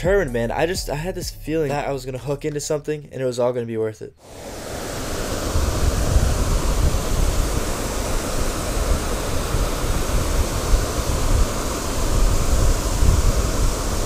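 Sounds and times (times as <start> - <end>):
steady rushing hiss: 4.2 - 14.0
wind buffeting microphone: 5.3 - 14.0.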